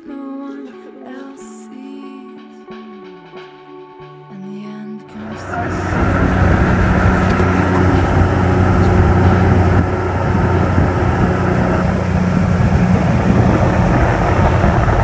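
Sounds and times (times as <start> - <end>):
outboard motor droning: 5.2 - 15.0
water and wind rushing: 5.2 - 15.0.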